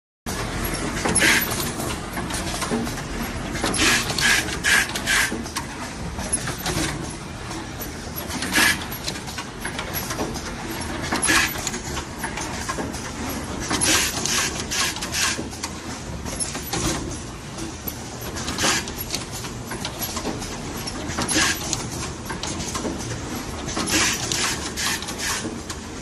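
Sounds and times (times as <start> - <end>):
steady mechanical background: 0.3 - 26.0
pneumatic cylinder strokes: 1.0 - 1.7, 3.6 - 5.5, 8.3 - 9.2, 11.1 - 11.8, 13.7 - 15.5, 23.8 - 25.6.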